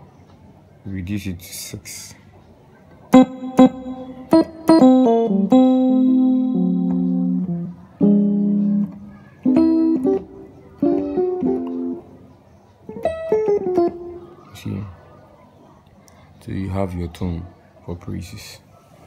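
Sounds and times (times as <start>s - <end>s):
electric piano keyboard chords: 2.9s - 15.1s.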